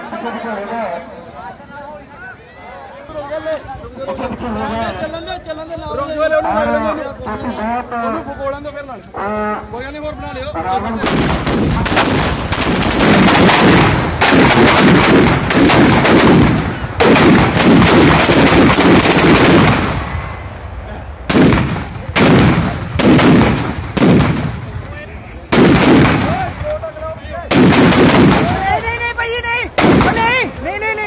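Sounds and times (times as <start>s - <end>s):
firecrackers banging: 11.0s - 31.0s.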